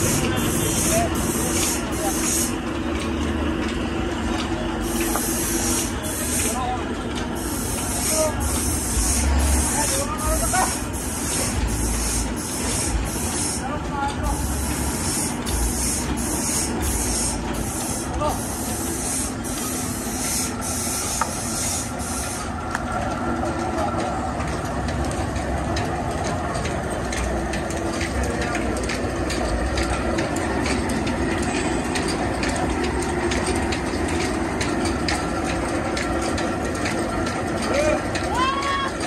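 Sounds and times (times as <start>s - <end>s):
hiss: 0.0s - 2.6s, 4.8s - 6.6s, 7.4s - 13.7s, 14.3s - 22.5s
sawmill machinery rumbling: 0.0s - 39.0s.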